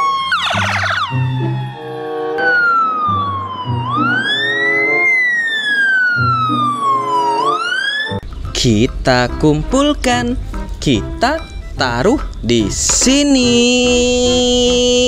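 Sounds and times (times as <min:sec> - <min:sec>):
background music with simple melody: 0:00.0 - 0:05.3, 0:06.1 - 0:15.0
ambulance siren wailing: 0:00.0 - 0:08.2.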